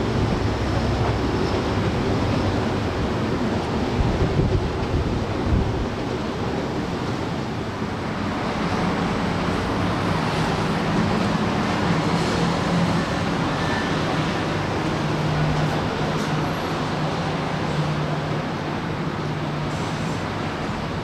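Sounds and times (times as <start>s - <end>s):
wind buffeting microphone: 0.0s - 13.0s
outdoor harbour rumble: 0.0s - 21.0s.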